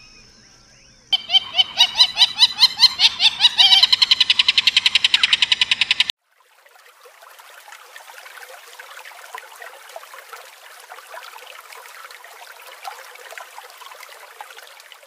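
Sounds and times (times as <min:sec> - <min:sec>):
trickling bubbling water: 0:05.8 - 0:15.0.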